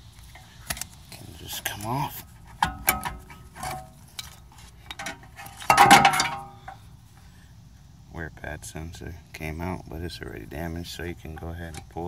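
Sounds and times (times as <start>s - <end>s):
metal clatter: 2.5s - 6.8s.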